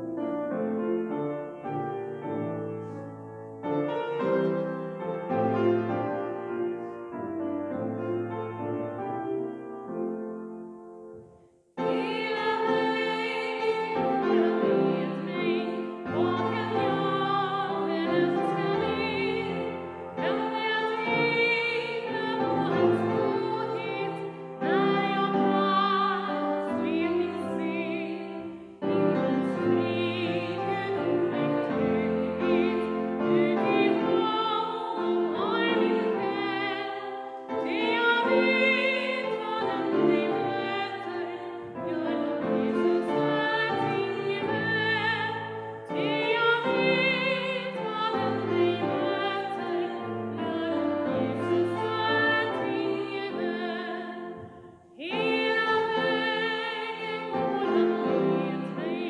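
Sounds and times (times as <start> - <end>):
woman singing a hymn: 11.8 - 59.0.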